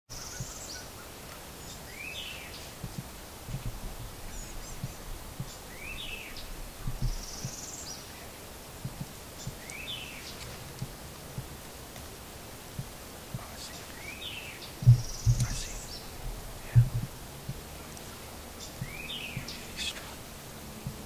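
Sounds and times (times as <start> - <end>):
outdoor hiss: 0.1 - 21.0
songbird singing: 0.1 - 21.0
soft low thumps: 2.7 - 7.6, 8.8 - 9.7, 10.4 - 13.7, 14.8 - 19.6, 20.8 - 21.0.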